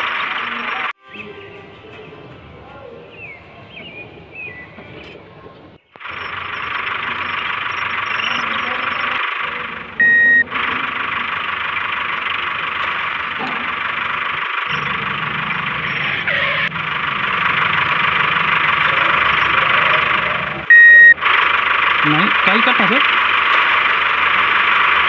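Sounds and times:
short high beep: 0:10.0 - 0:10.5, 0:20.7 - 0:21.2.

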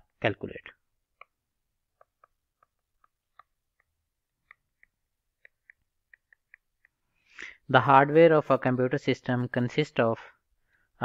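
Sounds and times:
stylus tapping on tablet: 0:01.1 - 0:07.0.

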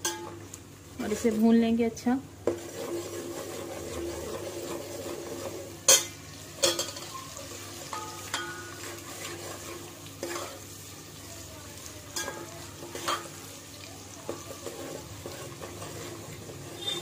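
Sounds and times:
onions sizzling in hot oil: 0:00.0 - 0:17.0
ladle scraping and knocking pot: 0:02.4 - 0:07.2, 0:14.3 - 0:17.0.

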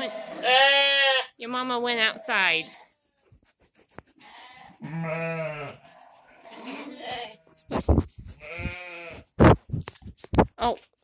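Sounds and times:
sheep bleating: 0:00.0 - 0:01.4, 0:04.2 - 0:07.7, 0:08.4 - 0:09.3
bumps and rubs on phone: 0:05.1 - 0:11.0.

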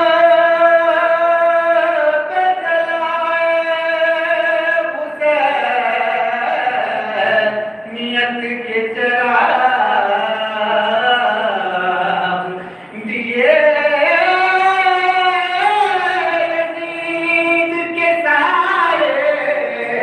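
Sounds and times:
man singing unaccompanied: 0:00.0 - 0:20.0
singer breathing: 0:12.5 - 0:13.0.

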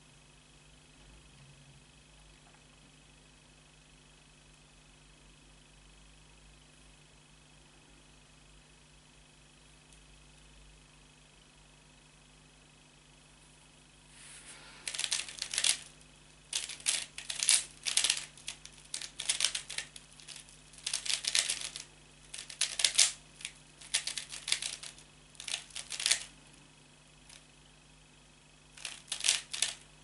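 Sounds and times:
puzzle cube clicking: 0:14.8 - 0:15.9, 0:16.5 - 0:26.3, 0:28.8 - 0:29.8.

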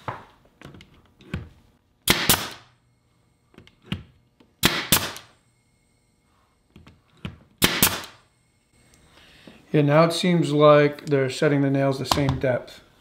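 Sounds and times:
nail gun firing into wood: 0:02.0 - 0:02.7, 0:04.6 - 0:05.3, 0:07.6 - 0:08.2.

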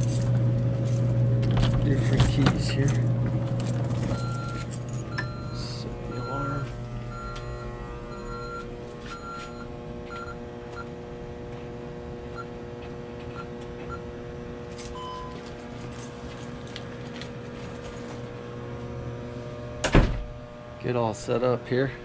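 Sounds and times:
steady hum: 0:00.0 - 0:22.0
alarm keypad beeping: 0:04.1 - 0:10.4.

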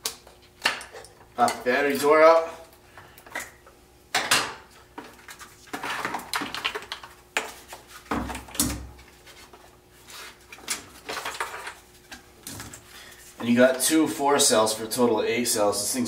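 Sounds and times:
plastic clatter and rustling: 0:04.2 - 0:08.8, 0:10.5 - 0:12.8.

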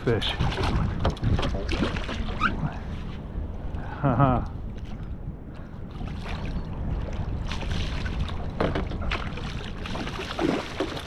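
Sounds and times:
wind rumble on microphone: 0:00.0 - 0:11.0
fish thrashing and splashing: 0:07.2 - 0:11.0.

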